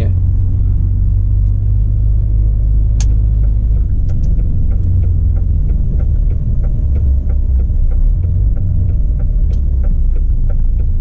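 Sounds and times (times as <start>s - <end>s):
diesel engine rumble: 0.0s - 11.0s
sharp click: 3.0s - 4.4s
indicator relay ticking: 3.0s - 11.0s.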